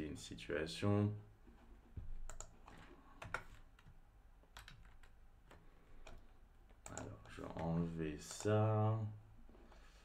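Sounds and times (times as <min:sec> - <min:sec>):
computer keyboard typing: 0:02.3 - 0:03.9, 0:04.5 - 0:06.2, 0:06.8 - 0:08.6.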